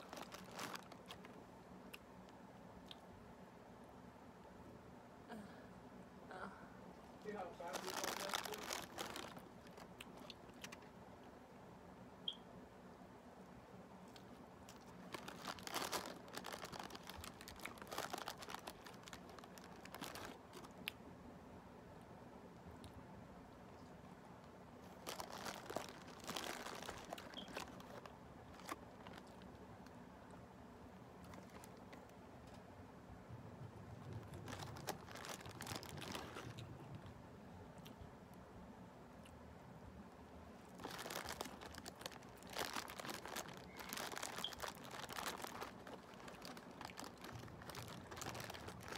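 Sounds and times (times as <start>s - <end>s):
plastic bag crinkling: 0.0s - 1.4s, 7.2s - 10.9s, 14.7s - 20.9s, 24.8s - 29.8s, 31.2s - 32.0s, 33.9s - 37.1s, 40.6s - 48.9s.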